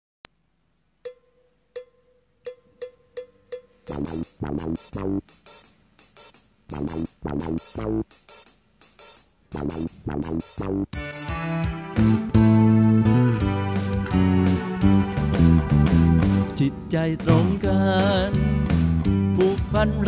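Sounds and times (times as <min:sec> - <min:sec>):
full band on steady beat: 0:03.9 - 0:12.7, 0:13.4 - 0:16.6, 0:17.2 - 0:20.0.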